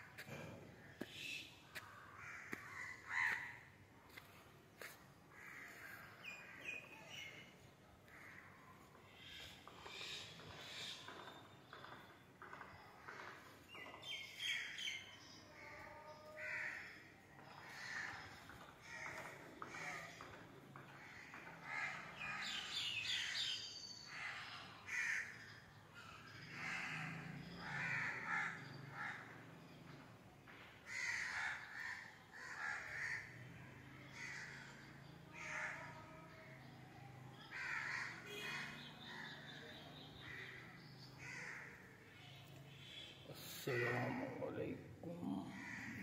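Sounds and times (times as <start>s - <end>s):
crows cawing: 0.2s - 4.2s, 4.8s - 6.7s, 8.1s - 10.1s, 15.6s - 29.4s, 30.8s - 36.2s, 37.3s - 39.4s, 40.2s - 42.0s, 45.4s - 46.0s.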